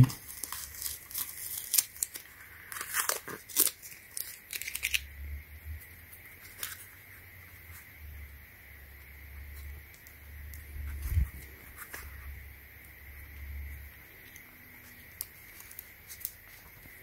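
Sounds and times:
tape peeling with crackling rips: 0:00.0 - 0:05.2, 0:14.3 - 0:17.0
faint handling sounds: 0:09.5 - 0:17.0.

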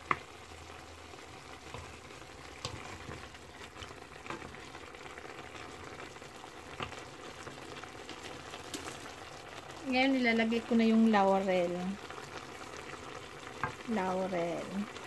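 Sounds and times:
water boiling in a pan: 0:00.0 - 0:15.0
wooden spoon knocking a pan: 0:13.6 - 0:13.8.

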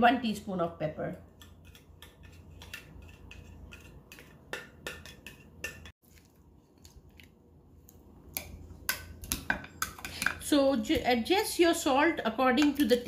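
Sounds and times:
spatula knocking against dish: 0:01.7 - 0:06.0.

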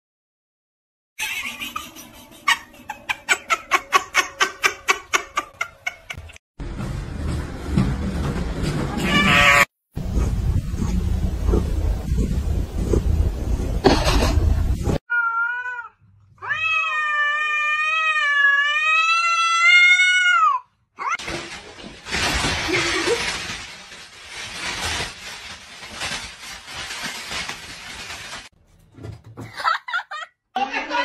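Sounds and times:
cat meowing: 0:15.1 - 0:21.1
plastic bag rustling: 0:21.2 - 0:28.6.

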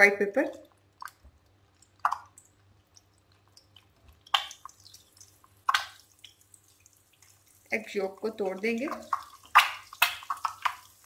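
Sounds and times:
oil crackling and spitting: 0:00.7 - 0:07.8, 0:08.9 - 0:11.0.

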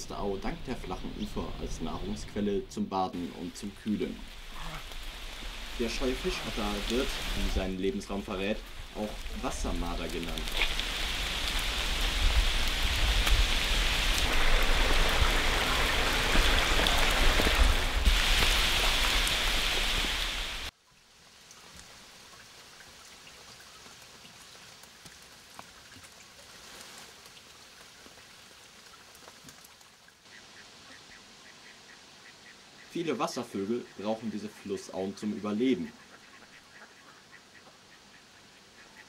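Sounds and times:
faint hiss: 0:00.0 - 0:24.1
water rushing with patter: 0:03.2 - 0:33.6.

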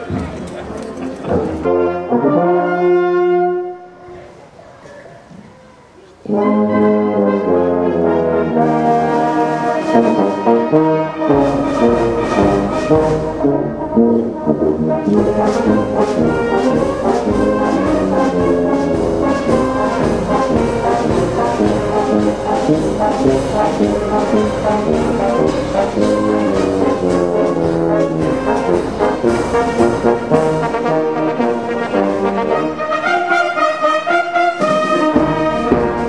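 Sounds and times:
brass band playing: 0:00.0 - 0:04.2, 0:06.2 - 0:36.0
steady drum beat: 0:11.3 - 0:32.5, 0:34.5 - 0:36.0.

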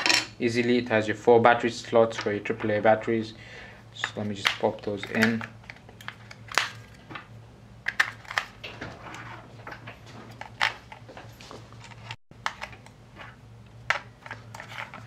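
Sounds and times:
batteries clicking into compartment: 0:04.4 - 0:06.8.

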